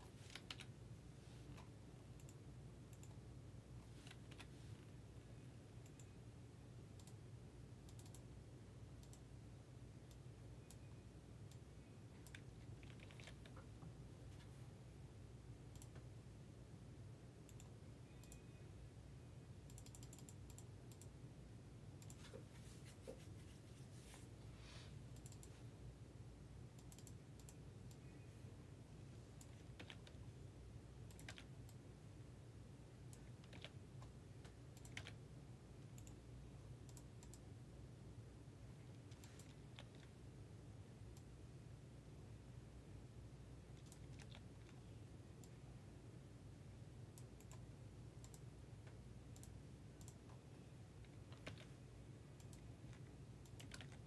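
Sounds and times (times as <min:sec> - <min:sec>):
low steady hum: 0:00.0 - 0:54.0
keyboard typing clicks: 0:00.2 - 0:00.8, 0:01.5 - 0:03.2, 0:04.0 - 0:04.5, 0:05.8 - 0:06.2, 0:06.9 - 0:07.2, 0:07.9 - 0:08.3, 0:09.0 - 0:09.2, 0:10.0 - 0:13.8, 0:15.7 - 0:16.1, 0:17.4 - 0:18.5, 0:19.6 - 0:21.2, 0:25.2 - 0:25.5, 0:26.8 - 0:28.2, 0:29.4 - 0:30.2, 0:31.0 - 0:31.8, 0:33.1 - 0:35.2, 0:35.8 - 0:36.2, 0:36.8 - 0:37.4, 0:38.9 - 0:40.2, 0:43.7 - 0:44.8, 0:47.2 - 0:50.4, 0:51.0 - 0:51.8, 0:52.4 - 0:54.0.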